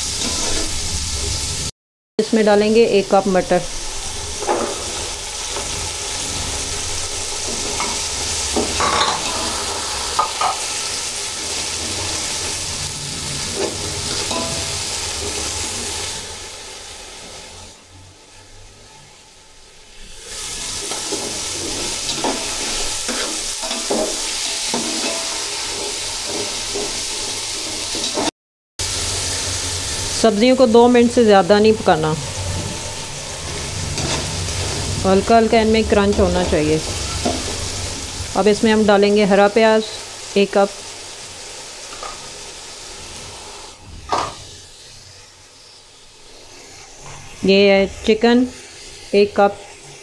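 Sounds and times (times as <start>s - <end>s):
vegetables sizzling in hot oil: 0.0s - 50.0s
metal spatula scraping a pot: 0.1s - 0.8s, 32.2s - 38.1s.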